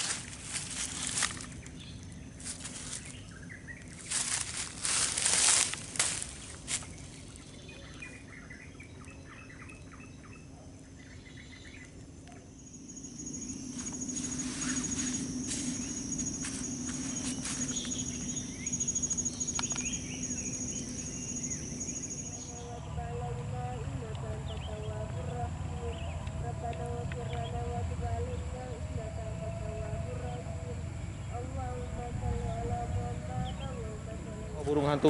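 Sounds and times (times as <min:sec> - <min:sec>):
insect pulsing trill: 0:00.0 - 0:35.0
low steady hum: 0:00.0 - 0:35.0
small birds chirping: 0:00.0 - 0:35.0.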